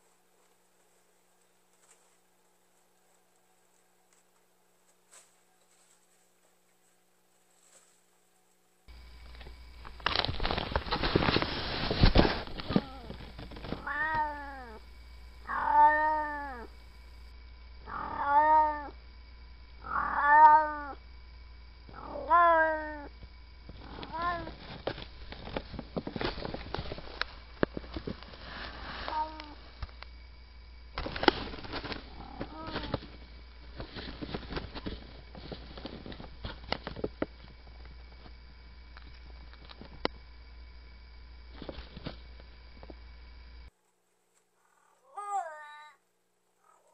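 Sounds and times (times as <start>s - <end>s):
cat rubbing against camera: 10.6s - 14.3s
cat meowing: 13.8s - 14.8s, 15.5s - 16.7s, 17.9s - 19.0s, 19.8s - 21.0s, 22.0s - 23.1s, 44.9s - 46.0s.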